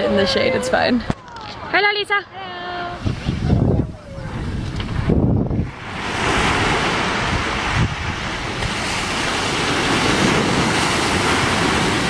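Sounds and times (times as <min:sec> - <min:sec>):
wind rumbling on microphone: 0:02.8 - 0:12.0
waves breaking on beach: 0:03.0 - 0:12.0.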